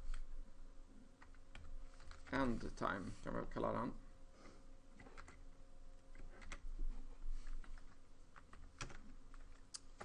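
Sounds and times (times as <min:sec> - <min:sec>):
computer keyboard typing: 0:01.2 - 0:02.5, 0:05.0 - 0:05.5, 0:06.1 - 0:06.7, 0:07.4 - 0:10.0.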